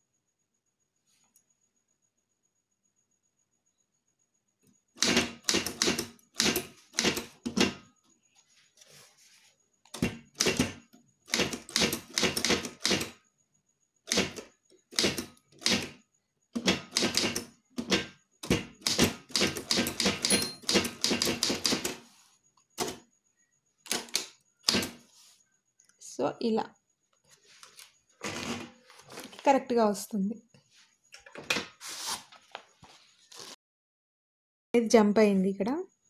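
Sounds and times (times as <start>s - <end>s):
typewriter key strikes: 11.3s - 13.1s, 16.6s - 22.0s.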